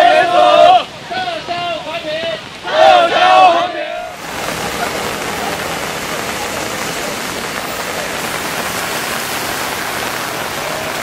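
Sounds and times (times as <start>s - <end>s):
steady rain falling: 0.0s - 11.0s.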